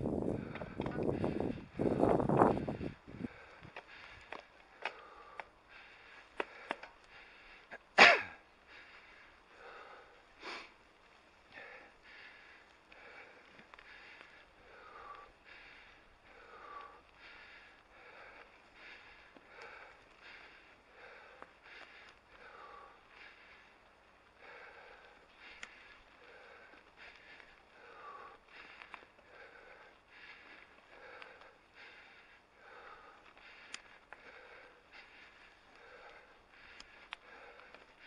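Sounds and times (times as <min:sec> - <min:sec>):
rhythmic breathing: 0:00.0 - 0:38.0
sharp clicks: 0:25.5 - 0:25.8, 0:33.7 - 0:34.2, 0:36.7 - 0:37.7.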